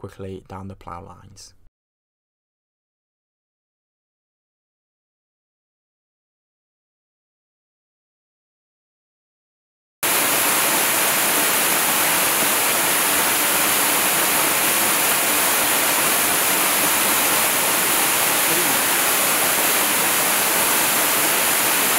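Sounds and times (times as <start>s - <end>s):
waterfall rushing: 10.0s - 21.9s.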